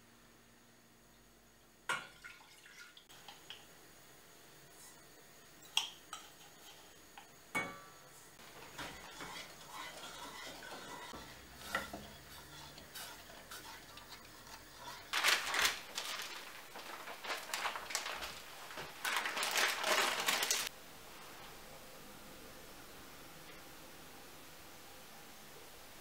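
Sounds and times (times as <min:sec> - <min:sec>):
milk boiling with bubbling hiss: 0:01.8 - 0:22.0
spoon scraping saucepan: 0:08.4 - 0:15.2.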